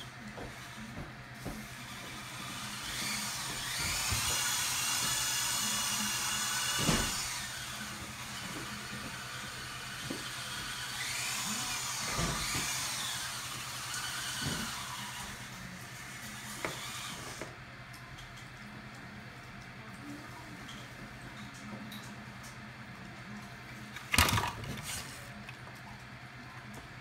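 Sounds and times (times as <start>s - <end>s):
electric motor whining: 1.6s - 17.5s.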